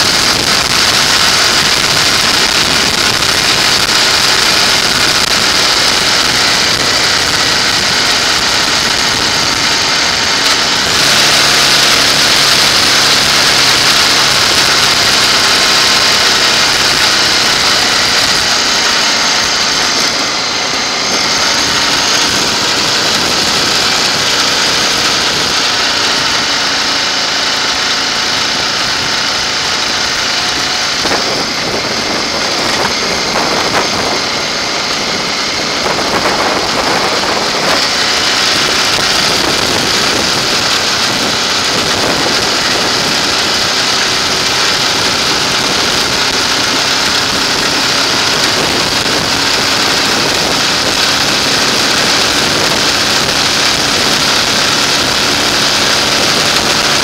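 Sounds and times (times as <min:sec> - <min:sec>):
motorcycle engine running: 0:00.0 - 0:57.0
wind rush on microphone: 0:00.0 - 0:57.0.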